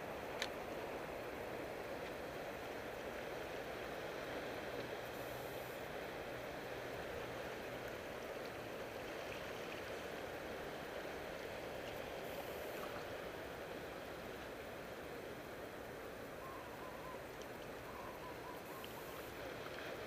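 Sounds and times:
water rushing: 0.0 - 20.0
wind: 0.0 - 20.0.

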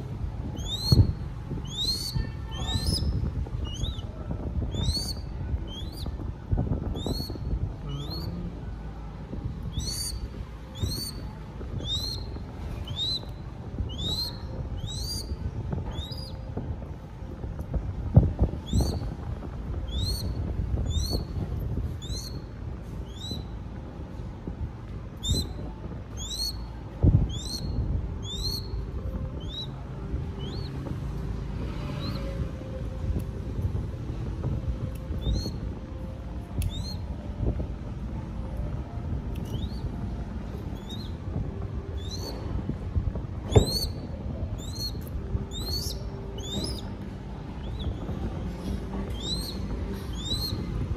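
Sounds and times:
young hawk high-pitched calls: 0.6 - 6.2, 6.9 - 8.4, 9.7 - 16.5, 18.6 - 19.1, 19.9 - 21.3, 22.0 - 23.5, 25.2 - 26.6, 27.2 - 28.8, 29.4 - 29.8, 30.4 - 30.7, 35.2 - 35.6, 36.7 - 37.0, 39.4 - 39.8, 40.8 - 41.2, 42.0 - 42.4, 43.5 - 44.0, 44.6 - 46.9, 47.6 - 48.1, 49.1 - 50.6.

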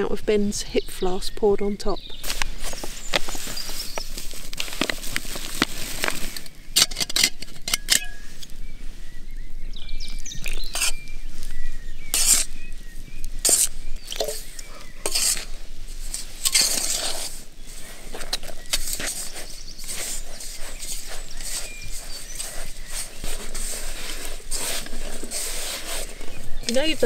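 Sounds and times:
spoon scraping metal pot: 6.8 - 8.2, 13.4 - 15.5.

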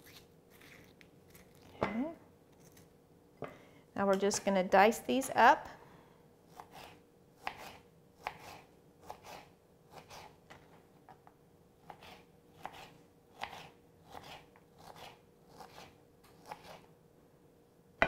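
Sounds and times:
knife chopping on cutting board: 6.6 - 10.3.

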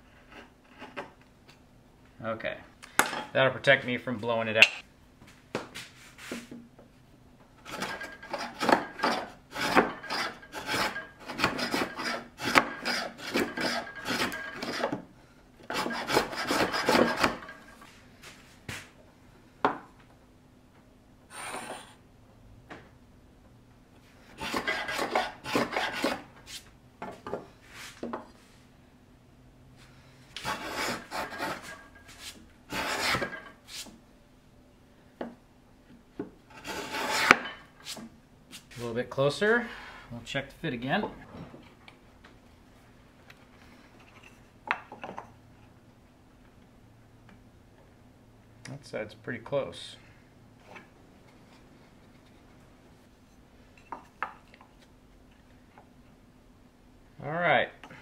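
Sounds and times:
hand plane shaving wood: 7.6 - 15.0, 15.7 - 17.5, 24.4 - 26.3, 30.4 - 31.8, 32.7 - 33.4, 36.5 - 37.4.

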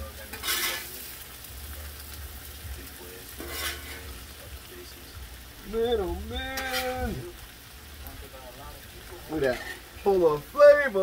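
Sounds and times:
food sizzling on griddle: 0.0 - 11.0
metal spatula scraping: 0.2 - 1.1, 3.4 - 4.2, 6.5 - 7.1, 9.3 - 10.2.

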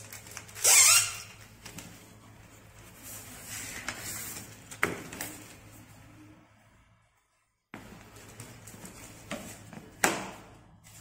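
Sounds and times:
plastic sheet rustling: 0.0 - 5.9.

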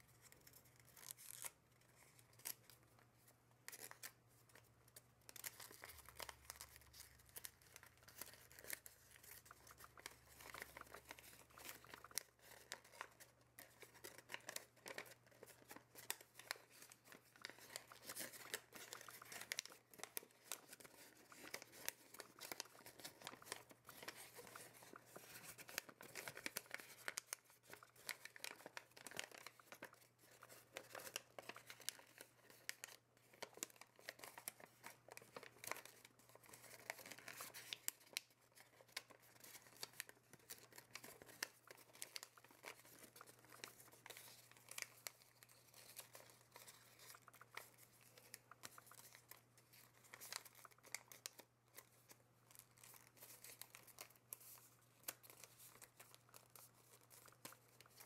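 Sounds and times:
paper crinkling as folded: 0.0 - 58.0.

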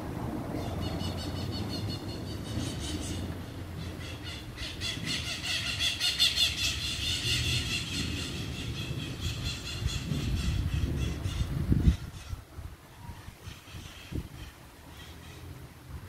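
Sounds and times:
birds squawking: 0.6 - 12.4.

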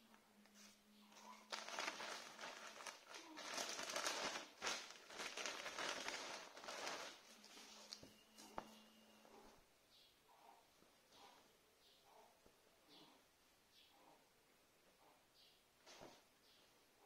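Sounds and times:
plastic packaging crinkling: 1.2 - 8.1.

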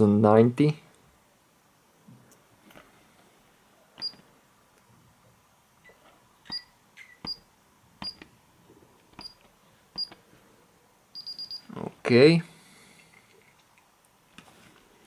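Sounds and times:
alarm keypad beeps: 11.2 - 11.6.

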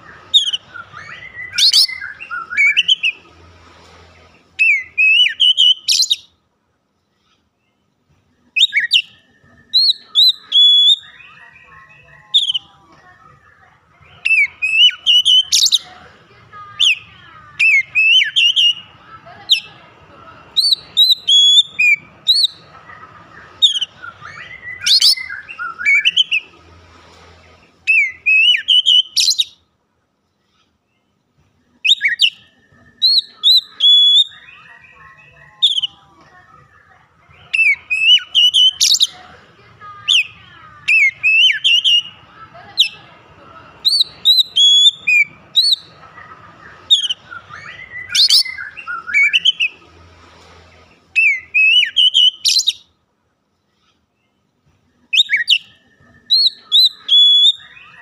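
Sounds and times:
bird singing whistled notes: 0.0 - 3.2, 4.6 - 6.3, 8.6 - 11.7, 14.2 - 15.9, 17.6 - 18.9, 20.6 - 22.6, 23.6 - 26.6, 27.9 - 29.6, 31.8 - 36.0, 37.4 - 39.2, 40.9 - 42.2, 43.8 - 45.9, 46.8 - 49.8, 51.2 - 52.9, 55.1 - 58.0.

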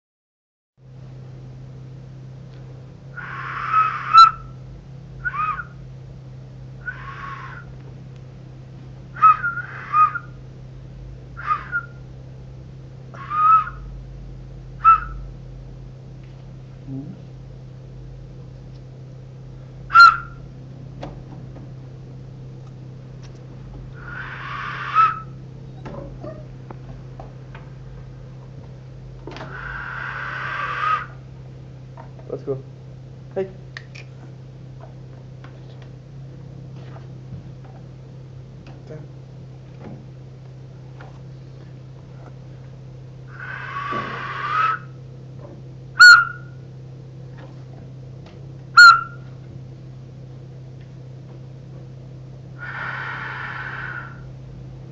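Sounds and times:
steady low hum: 0.8 - 54.9
whistle blown: 14.8 - 15.2, 46.0 - 46.5, 48.8 - 49.2.

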